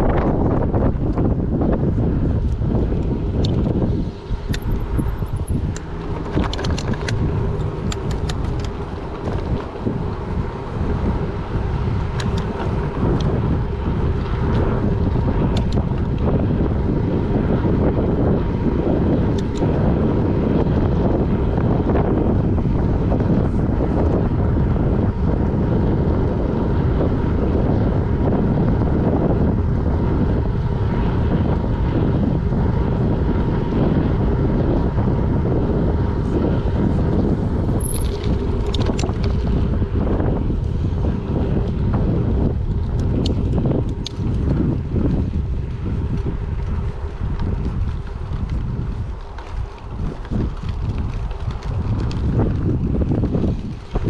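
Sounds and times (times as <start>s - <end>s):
tyres rolling on asphalt: 0.0s - 54.0s
wind rushing over microphone: 0.0s - 54.0s
sharp clicks: 5.6s - 9.4s.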